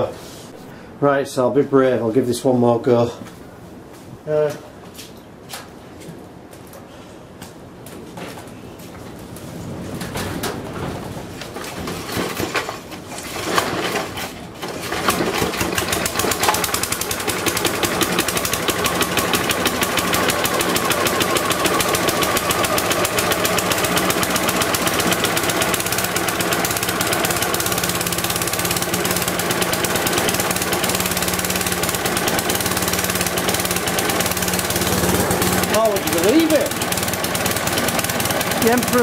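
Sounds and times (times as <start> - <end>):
lawnmower engine pull-started: 11.5 - 39.0
lawnmower engine running: 11.6 - 39.0.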